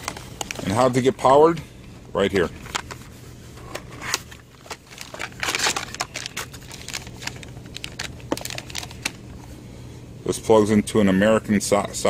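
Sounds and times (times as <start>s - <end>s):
steady low hum: 0.0s - 12.0s
plastic bags crinkling: 4.1s - 9.4s.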